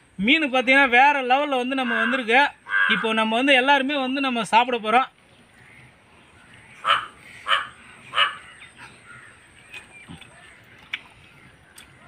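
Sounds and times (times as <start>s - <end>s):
crow cawing: 1.8s - 3.2s, 6.6s - 9.6s.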